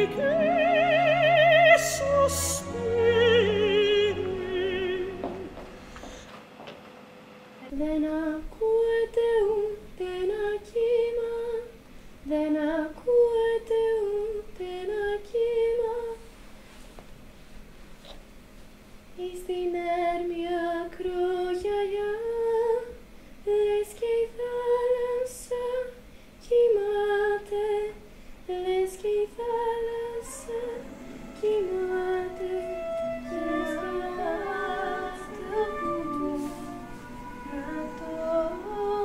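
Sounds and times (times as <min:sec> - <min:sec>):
woman singing: 0:00.0 - 0:05.6, 0:07.6 - 0:16.2, 0:19.2 - 0:39.0
voices singing in harmony: 0:00.0 - 0:05.8, 0:28.6 - 0:39.0.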